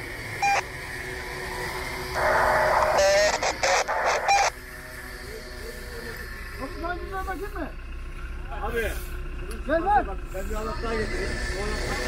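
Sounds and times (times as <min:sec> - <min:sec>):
vehicle engine running low: 0:00.0 - 0:12.0
radio beep: 0:00.4 - 0:00.6, 0:02.2 - 0:04.6
radio static with garbled voice: 0:02.1 - 0:06.3.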